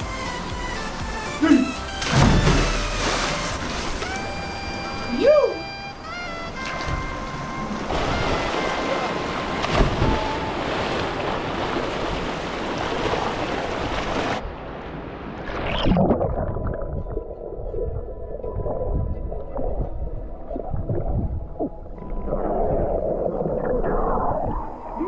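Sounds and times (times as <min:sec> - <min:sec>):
water splashing and churning: 0:00.6 - 0:05.1, 0:05.9 - 0:25.0
underwater bubbles rushing: 0:15.5 - 0:25.0
underwater gurgling and knocks: 0:15.6 - 0:25.0.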